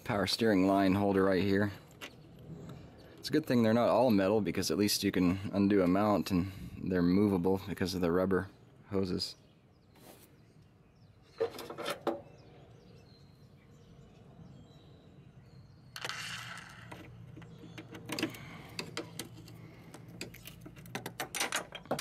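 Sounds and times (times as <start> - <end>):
rustle: 9.9 - 10.5.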